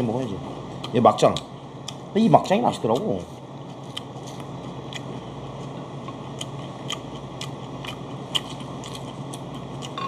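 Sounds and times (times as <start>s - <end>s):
steady low hum: 0.0s - 10.0s
chewing: 3.8s - 10.0s.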